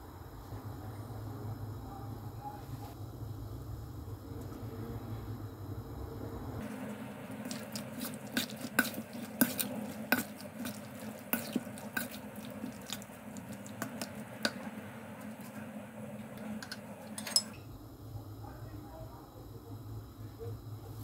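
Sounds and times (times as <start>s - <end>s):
spoon clinking and scraping bowl: 7.3s - 17.6s.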